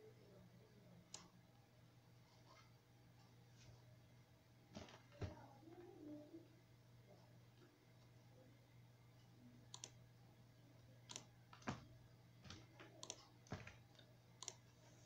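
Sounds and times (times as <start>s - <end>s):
low electrical hum: 0.0s - 15.0s
faint computer mouse clicks: 9.7s - 10.0s, 12.9s - 14.6s.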